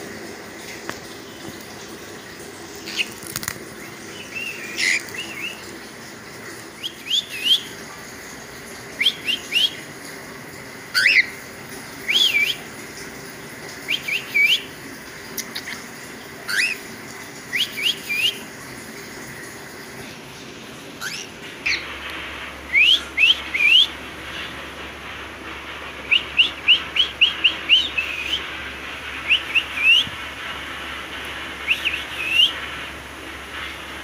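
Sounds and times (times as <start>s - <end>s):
cockatiel chirping: 16.5s - 16.8s, 21.0s - 21.8s.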